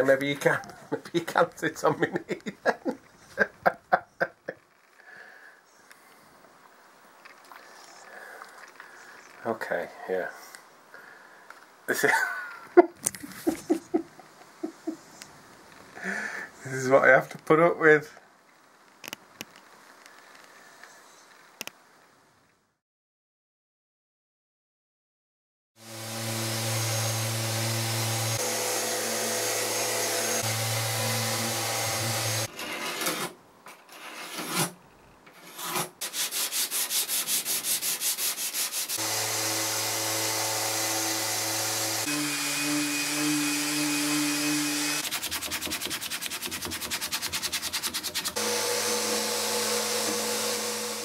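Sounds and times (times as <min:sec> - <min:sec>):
detail sander running on wood: 0:25.8 - 0:32.5, 0:38.9 - 0:45.1, 0:48.4 - 0:51.0
hand sanding with sandpaper: 0:35.5 - 0:39.0, 0:44.4 - 0:48.4.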